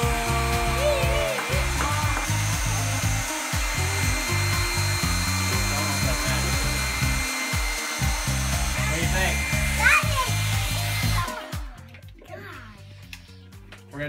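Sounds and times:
hair dryer blowing: 0.0s - 11.8s
background music: 0.0s - 14.0s.

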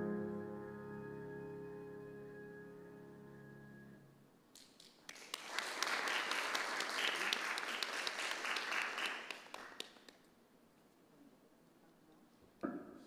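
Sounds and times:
audience applauding: 5.0s - 10.2s.

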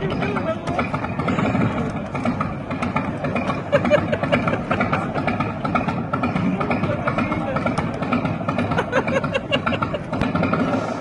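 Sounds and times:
people talking: 0.0s - 2.4s, 3.7s - 10.2s
engine idling: 0.0s - 11.0s.

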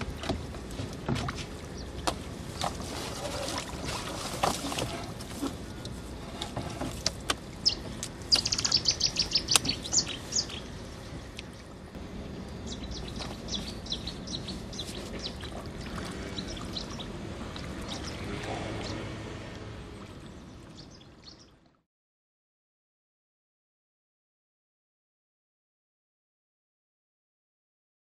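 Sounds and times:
water noise: 0.0s - 21.8s
small birds chirping: 7.6s - 11.7s, 12.5s - 19.2s, 20.0s - 21.7s.

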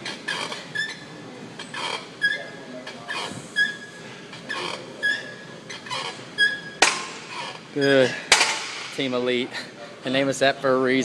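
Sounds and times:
exercise machine squeaking: 0.0s - 8.7s.

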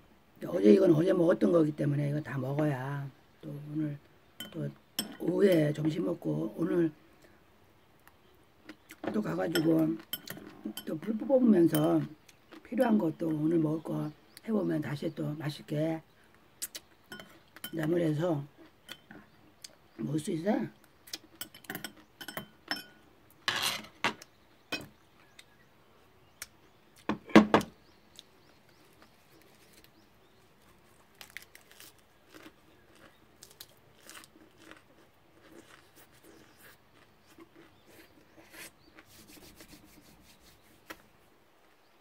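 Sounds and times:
crisp chewing: 28.1s - 40.6s
crunching bite into leaves: 30.6s - 38.1s.

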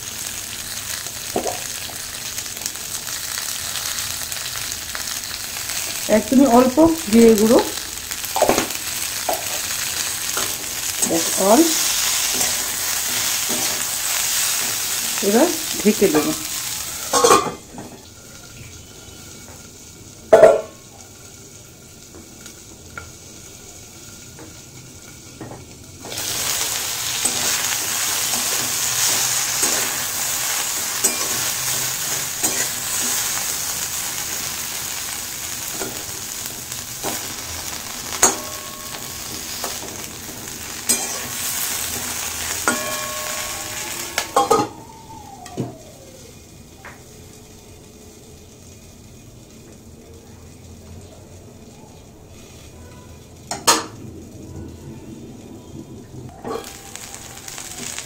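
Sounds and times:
food sizzling in oil: 0.0s - 58.0s
pan lid clanking: 20.3s - 20.7s.

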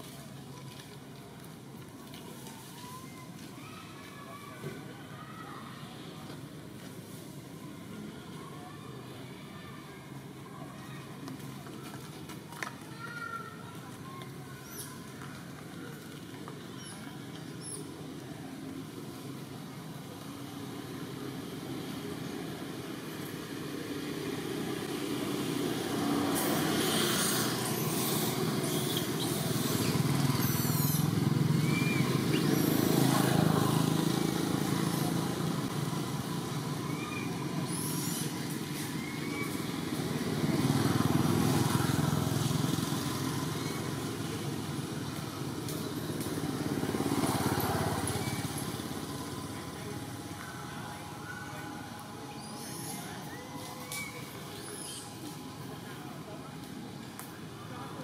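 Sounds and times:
passing vehicles engine rumble: 15.4s - 58.0s.

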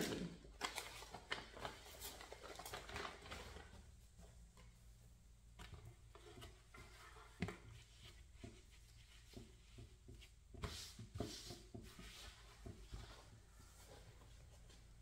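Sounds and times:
crinkly rustling: 0.0s - 5.0s.

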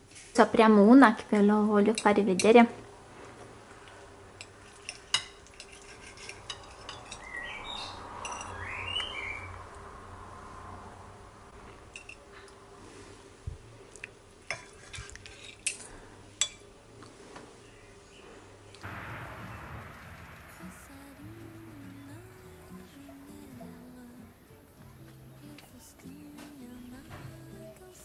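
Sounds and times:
cutlery scraping ceramic plate: 4.6s - 7.3s, 14.5s - 16.6s.

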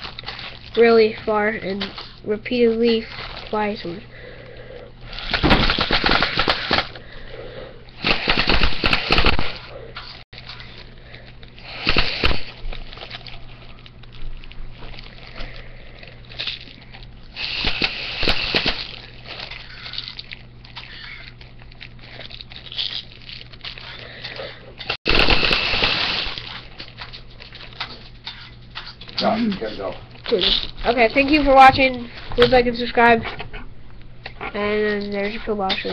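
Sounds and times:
steady low hum: 0.0s - 35.9s
rushing bursts of breath: 11.0s - 12.6s, 17.3s - 20.1s.

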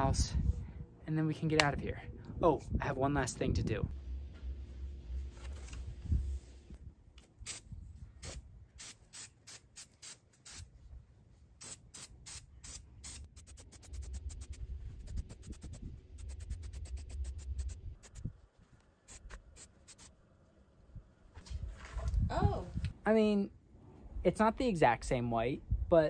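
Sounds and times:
spray paint can hissing: 7.4s - 10.7s, 11.6s - 18.3s, 19.1s - 20.1s.

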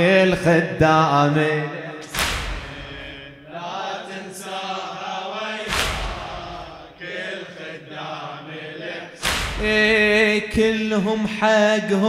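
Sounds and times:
men chanting in unison: 0.0s - 12.0s
collective chest-beat slap: 2.0s - 3.2s, 5.6s - 6.9s, 9.2s - 10.2s.

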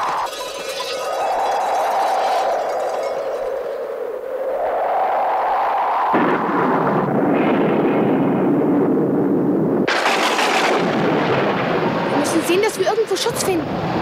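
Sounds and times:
thunderclap rolling: 0.0s - 14.0s
heavy rain downpour: 9.8s - 14.0s.

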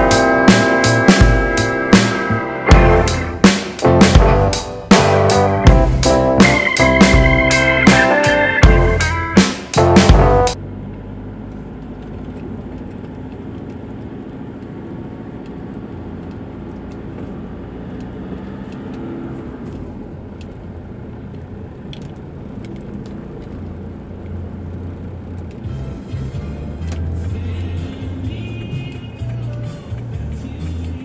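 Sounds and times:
car engine and tyre rumble: 8.7s - 31.0s.

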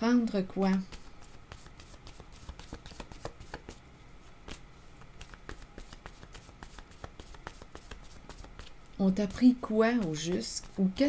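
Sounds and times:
cards being shuffled: 0.7s - 8.8s.

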